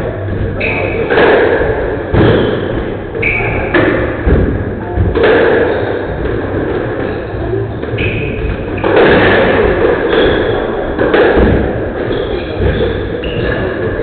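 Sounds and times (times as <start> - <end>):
squash ball hitting rackets and walls: 0.0 - 14.0
shoes squeaking on wooden floor: 9.5 - 10.9.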